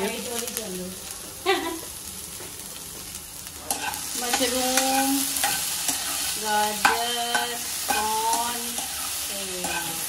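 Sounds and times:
vegetables sizzling in frying pan: 0.0s - 10.0s
spatula scraping a pan: 3.7s - 10.0s.

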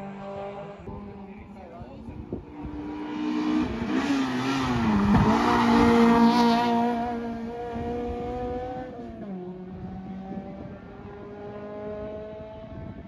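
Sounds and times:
race car engine passing: 0.0s - 13.0s.

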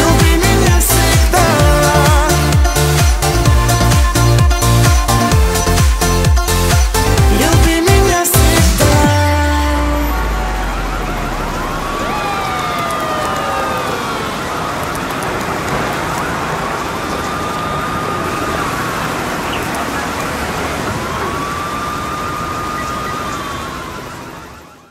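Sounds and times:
police siren wailing: 0.0s - 24.9s
heavy rain: 8.9s - 24.9s.

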